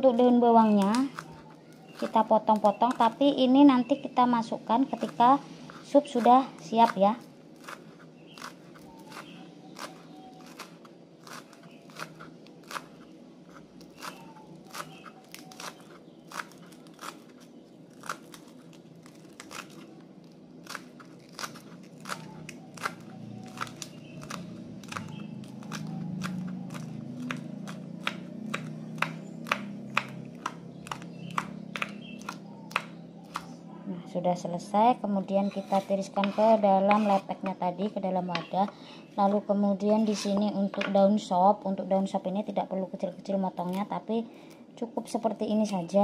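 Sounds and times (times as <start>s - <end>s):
knife chopping on wooden board: 7.6s - 17.3s, 20.7s - 33.5s, 35.5s - 37.6s.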